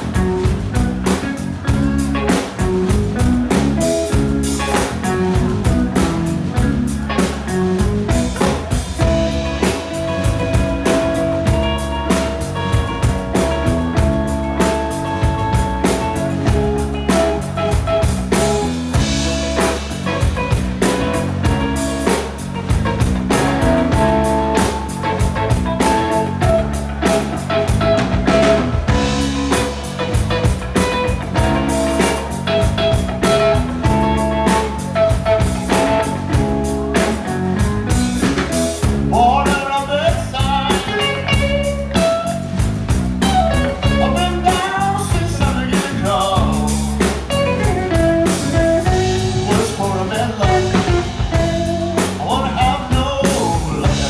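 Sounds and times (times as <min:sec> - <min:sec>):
electric blues band playing: 0:00.0 - 0:54.0
lead guitar bending notes: 0:00.0 - 0:54.0.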